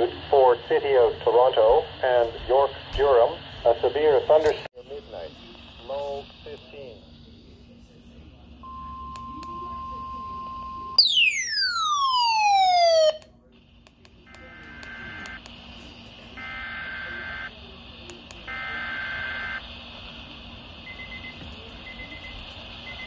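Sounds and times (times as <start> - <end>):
beeping alarm: 8.6 - 13.2
falling alarm sweep: 10.9 - 13.2.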